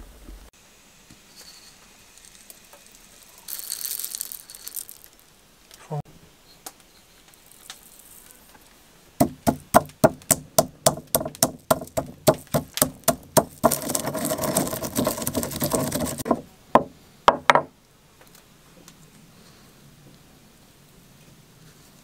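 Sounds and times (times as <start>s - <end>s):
pestle grinding spices: 9.2s - 16.4s
pestle pounding in stone mortar: 9.2s - 17.7s.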